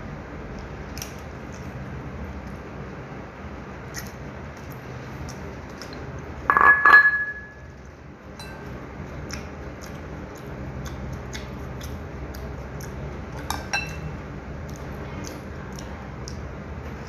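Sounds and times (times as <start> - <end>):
small clicks of eating: 0.5 - 3.0, 3.8 - 6.4, 7.6 - 17.0
ceramic mug clinking: 6.5 - 7.6, 13.7 - 14.0.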